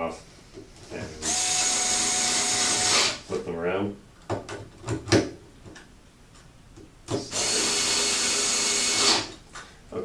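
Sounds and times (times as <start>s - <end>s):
electric screwdriver motor running: 1.2s - 3.2s, 7.3s - 9.3s.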